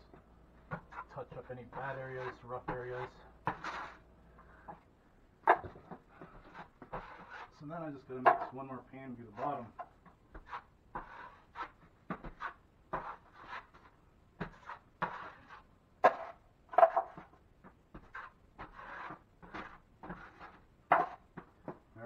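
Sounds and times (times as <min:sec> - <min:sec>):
drywall knife scraping: 0:00.7 - 0:04.0, 0:06.2 - 0:08.4, 0:09.3 - 0:21.2.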